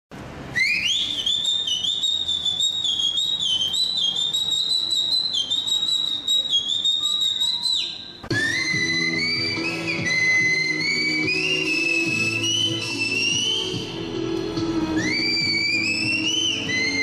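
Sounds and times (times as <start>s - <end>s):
high finger whistle: 0.5s - 14.0s, 14.9s - 17.0s.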